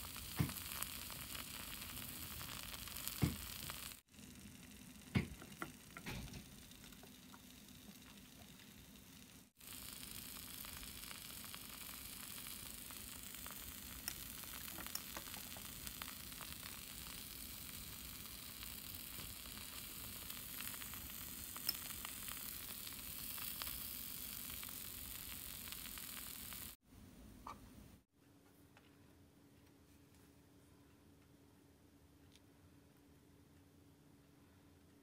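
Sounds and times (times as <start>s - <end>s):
batter sizzling in a frying pan: 0.0s - 26.8s.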